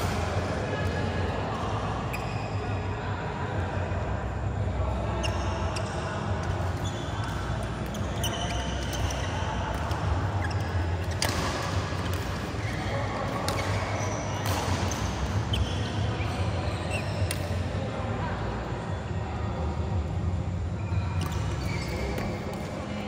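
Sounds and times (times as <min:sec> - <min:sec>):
shoes squeaking on court: 0:05.2 - 0:17.6, 0:21.2 - 0:22.9
rackets striking shuttlecock: 0:11.0 - 0:15.4, 0:17.2 - 0:17.6.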